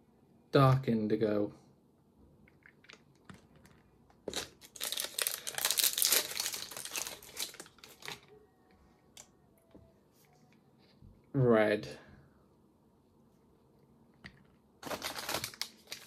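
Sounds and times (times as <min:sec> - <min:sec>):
packaging crinkling and tearing: 0:04.2 - 0:08.3, 0:14.8 - 0:16.0.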